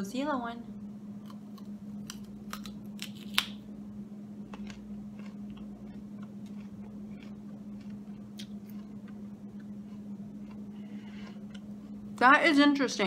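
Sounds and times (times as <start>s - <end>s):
low hum: 0.0s - 13.0s
teeth crunching date: 1.2s - 3.6s, 4.4s - 12.2s
quiet chewing: 4.4s - 12.2s.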